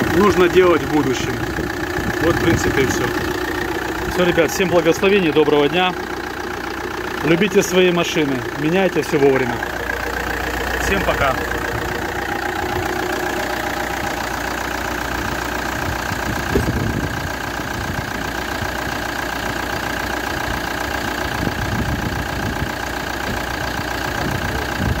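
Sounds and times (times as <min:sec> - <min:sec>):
high engine whine: 0:00.0 - 0:18.2
diesel engine idling: 0:00.0 - 0:25.0
engine knock: 0:00.0 - 0:25.0.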